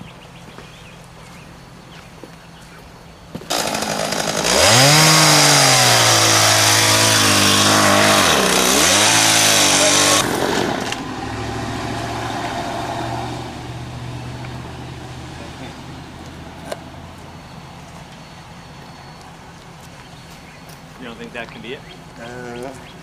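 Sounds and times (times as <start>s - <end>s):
truck engine revving hard: 3.5s - 16.2s
loud rushing noise: 6.8s - 15.2s.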